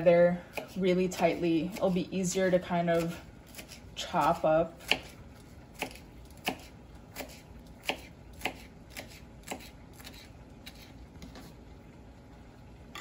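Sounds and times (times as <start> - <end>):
knife chopping on cutting board: 5.8 - 10.9.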